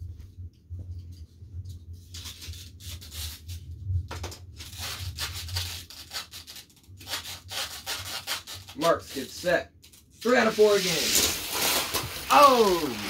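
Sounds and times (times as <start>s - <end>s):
rubbing and scraping handling: 4.5s - 13.0s.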